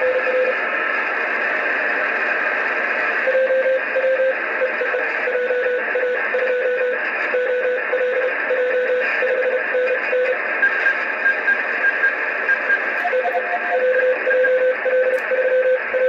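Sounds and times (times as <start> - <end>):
receiver hiss: 0.0 - 16.0
morse code tones: 3.3 - 16.0.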